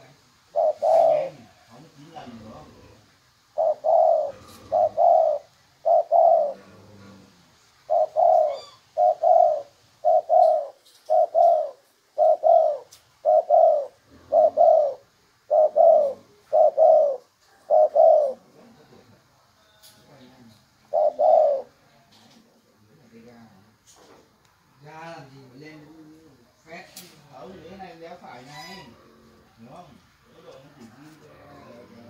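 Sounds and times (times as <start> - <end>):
dove cooing: 0.0 - 18.8, 20.8 - 21.8, 27.7 - 29.6, 30.3 - 32.0.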